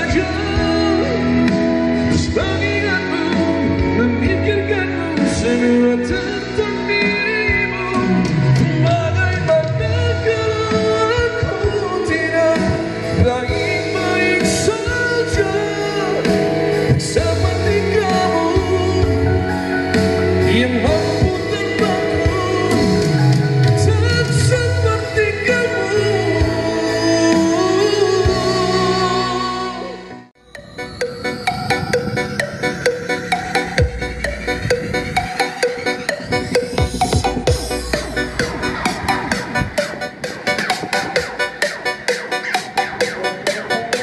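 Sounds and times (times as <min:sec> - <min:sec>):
man singing into a microphone: 0:00.0 - 0:30.2, 0:41.7 - 0:44.0
pop song over pa speakers: 0:00.0 - 0:44.0.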